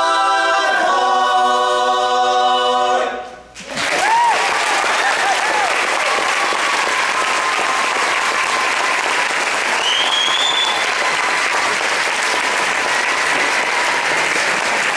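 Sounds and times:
audience applauding: 3.6s - 14.9s
high whistle from crowd: 9.7s - 11.2s.

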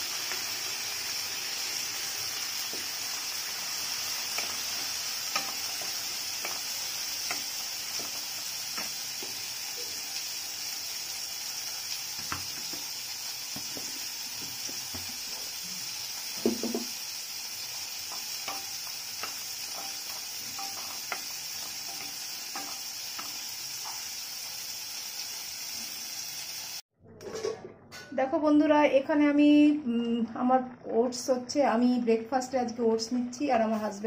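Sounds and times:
food sizzling in a pan: 0.0s - 26.8s
spatula scraping and tapping pan: 4.1s - 9.5s, 18.0s - 24.1s.

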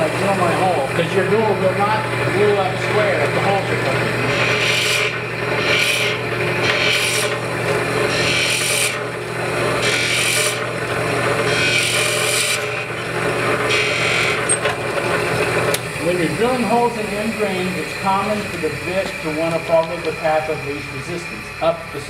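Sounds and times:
motor hum: 0.0s - 22.0s
drill bit rasping into wood: 3.8s - 7.4s, 8.0s - 14.8s.

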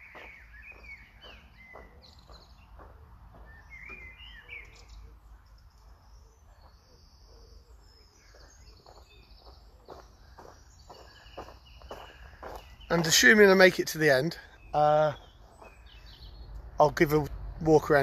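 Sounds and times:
footsteps crunching on gravel: 0.0s - 4.7s, 8.2s - 13.8s, 15.1s - 16.0s
birds chirping: 0.0s - 18.0s.

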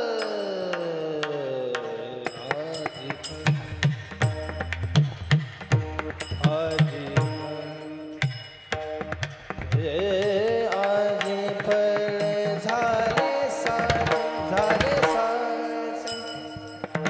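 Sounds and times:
person singing with vibrato: 0.0s - 4.8s, 5.8s - 9.0s, 9.6s - 17.0s
drum strokes: 0.0s - 17.0s
hand cymbals clashing: 2.3s - 9.6s, 13.7s - 17.0s.

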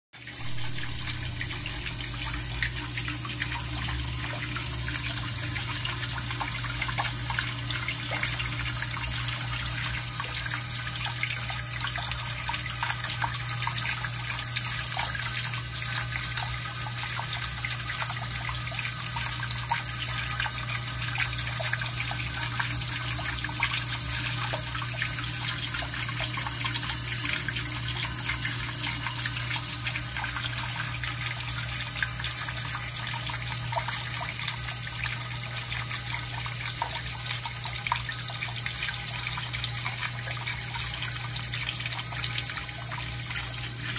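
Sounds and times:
running water rushing: 0.2s - 10.8s.

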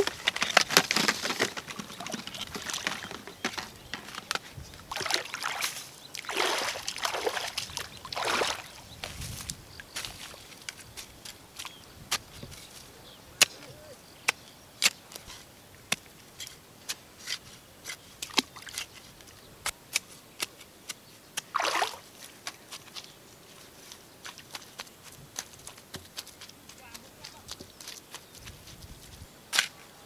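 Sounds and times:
water splash: 4.9s - 8.8s, 21.5s - 22.0s.

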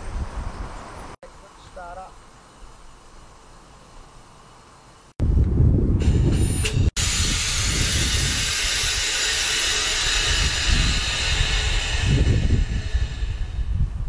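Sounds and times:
wind rumble on microphone: 0.0s - 1.2s, 5.2s - 14.0s
compressed air hissing: 6.0s - 14.0s.

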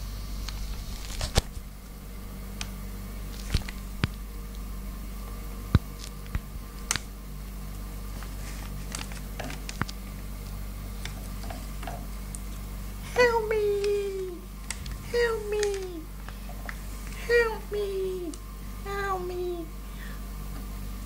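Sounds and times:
steady low hum: 0.0s - 21.0s
hamsters clicking: 13.7s - 17.2s.

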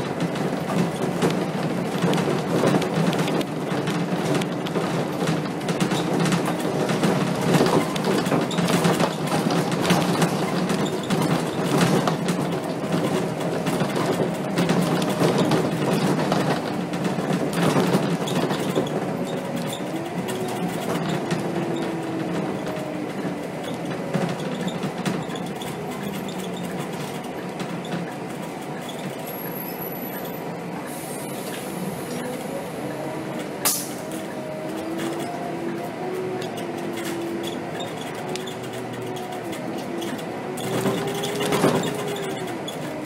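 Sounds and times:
bus engine and road noise: 0.0s - 43.0s
small rattles and clicks: 34.1s - 43.0s.

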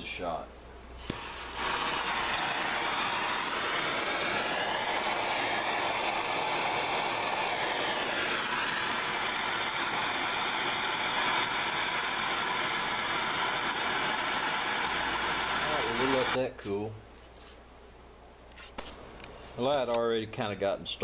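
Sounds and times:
gas torch hissing: 1.0s - 16.4s.

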